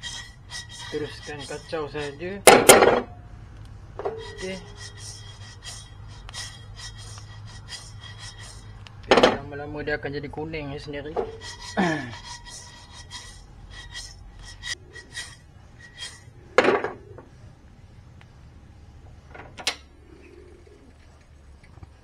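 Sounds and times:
metal spatula scraping rice in wok: 0.0s - 2.9s, 4.0s - 5.8s.

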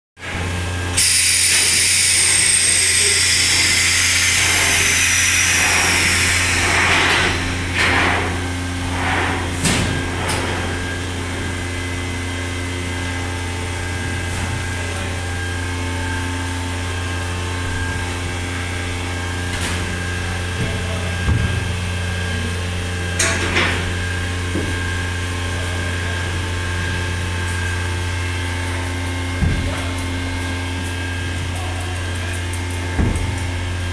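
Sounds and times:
low machine hum: 0.2s - 33.9s
power tool whining: 0.8s - 7.8s.

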